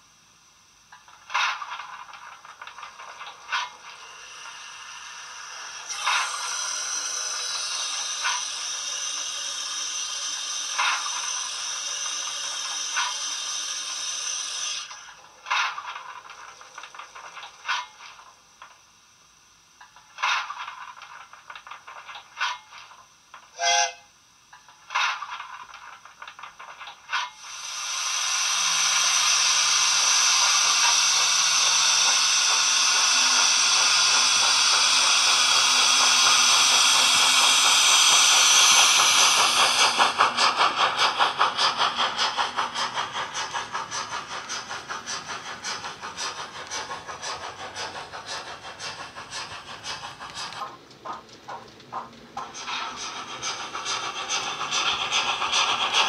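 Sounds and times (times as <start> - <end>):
steam locomotive exhaust chuffs: 0.0 - 56.0
steam engine clanks: 0.9 - 18.9, 19.8 - 56.0
loud steam hiss: 1.2 - 15.9, 23.6 - 24.0, 27.3 - 56.0.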